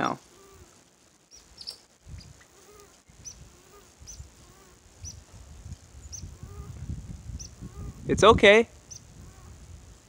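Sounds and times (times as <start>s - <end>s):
faint low animal call: 0.2s - 5.2s, 6.1s - 8.1s, 9.0s - 9.7s.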